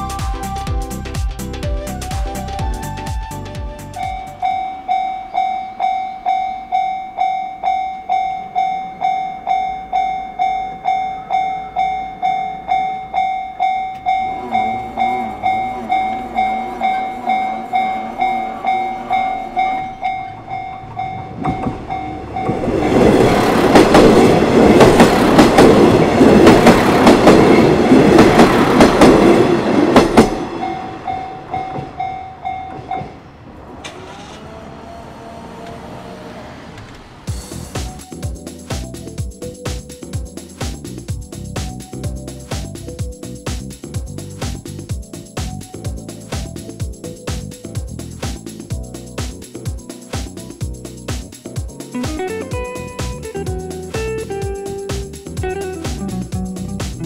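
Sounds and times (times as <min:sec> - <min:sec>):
train wheels rumbling: 0:00.0 - 0:57.0
level-crossing warning bell ringing: 0:04.0 - 0:23.2, 0:30.4 - 0:33.3.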